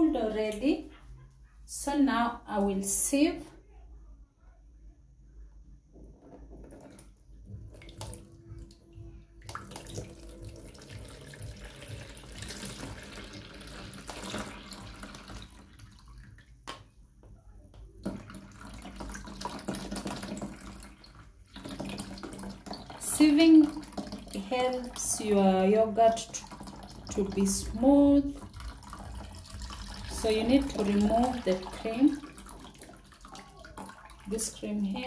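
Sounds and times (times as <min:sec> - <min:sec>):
milk splashing into plastic tub: 0:09.4 - 0:16.9, 0:18.0 - 0:25.0, 0:26.2 - 0:34.6.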